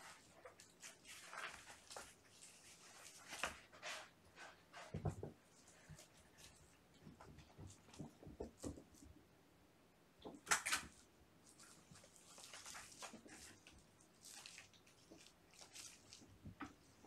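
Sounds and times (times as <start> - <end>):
kitten scratching cardboard: 0.0 - 9.0, 11.5 - 14.2
soft thuds and scuffles of paws: 2.8 - 9.1.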